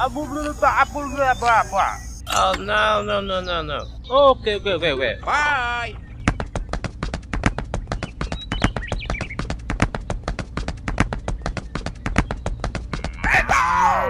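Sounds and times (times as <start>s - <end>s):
hooves clip-clopping: 5.9s - 13.4s
voice-like call: 13.0s - 14.0s.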